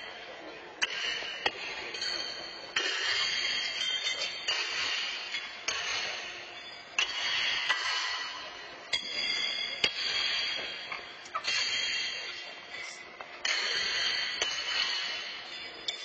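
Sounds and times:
horseshoes clanking on metal stakes: 0:00.8 - 0:16.0.

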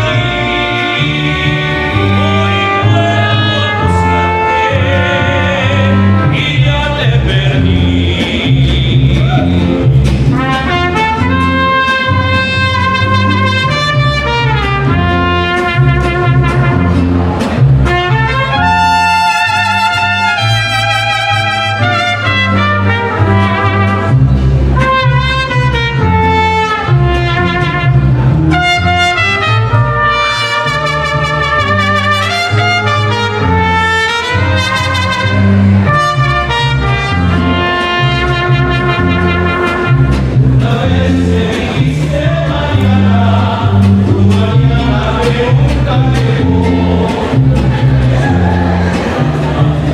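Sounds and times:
trumpets playing melody: 0:00.0 - 0:06.7, 0:10.3 - 0:40.5
plucked bass line: 0:00.0 - 0:49.9
strummed guitar: 0:00.0 - 0:49.9.

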